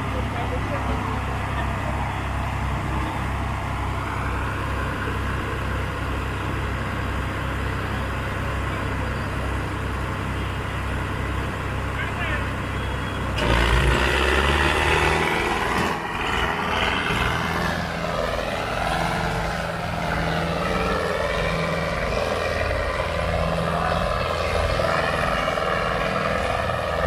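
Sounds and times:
tractor diesel engines under load: 0.0 - 27.0.

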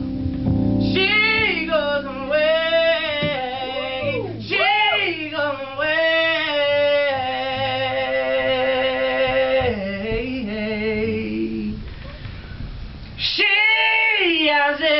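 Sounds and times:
low held accompaniment chord: 0.0 - 11.7
man singing high vocal runs: 1.6 - 11.8.

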